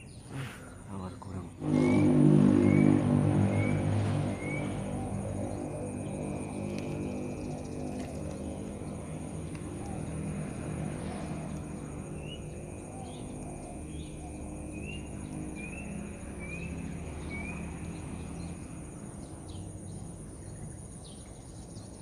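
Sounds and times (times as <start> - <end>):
birds chirping: 0.0 - 22.0
low rumble: 1.2 - 17.2
high-pitched insect drone: 1.5 - 20.3.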